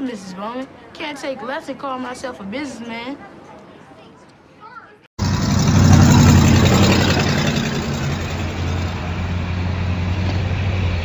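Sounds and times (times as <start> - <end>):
heavy vehicle engine humming: 5.2 - 11.0.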